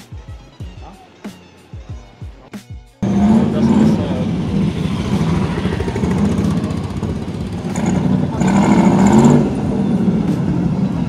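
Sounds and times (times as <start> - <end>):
motorcycle passing: 3.0 - 11.0
sports car engine: 3.0 - 11.0.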